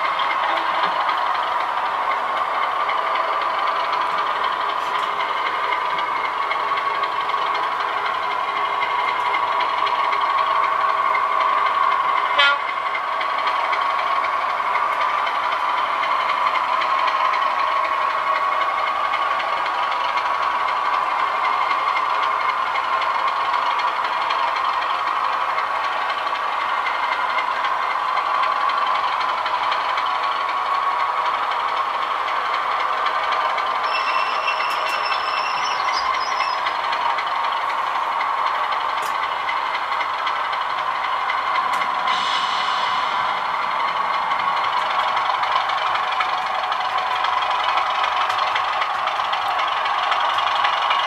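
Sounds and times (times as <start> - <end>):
diesel engine drone through speaker: 0.0 - 51.0.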